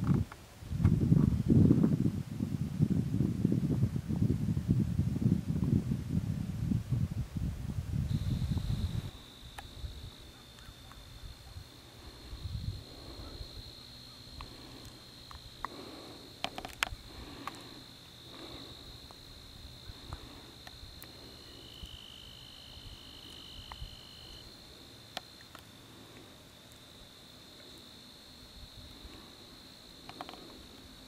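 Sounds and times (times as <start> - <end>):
insects trilling: 8.1 - 31.0.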